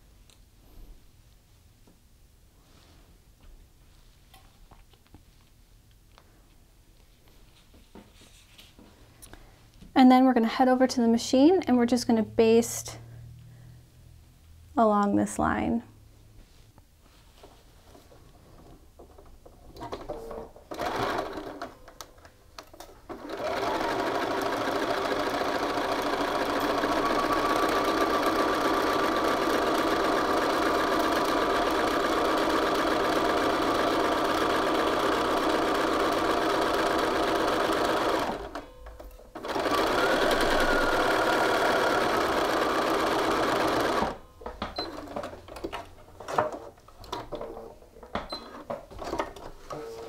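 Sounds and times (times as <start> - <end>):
sewing machine stitching: 19.8 - 22.0, 22.7 - 47.6.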